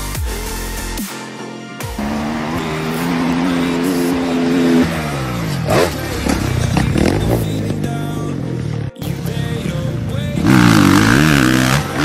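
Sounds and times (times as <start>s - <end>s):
dirt bike engine revving: 1.9s - 12.0s.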